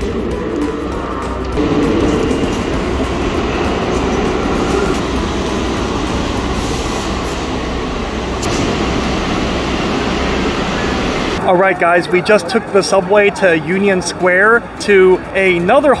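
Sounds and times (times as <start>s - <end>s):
subway train rumbling: 0.0s - 16.0s.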